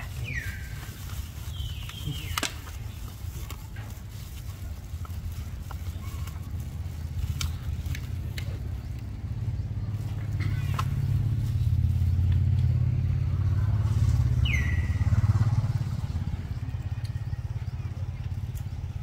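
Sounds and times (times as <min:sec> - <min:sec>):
low engine rumble: 0:00.0 - 0:19.0.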